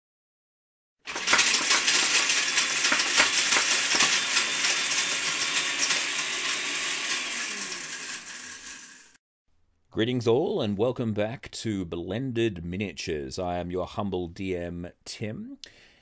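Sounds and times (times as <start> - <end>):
blender rattling with hard pieces: 1.0 - 9.2.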